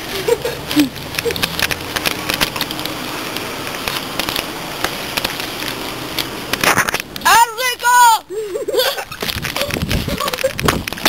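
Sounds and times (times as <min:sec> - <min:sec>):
loud crackling rustle: 0:00.0 - 0:07.4, 0:08.4 - 0:11.0
scattered clicks: 0:00.6 - 0:07.3.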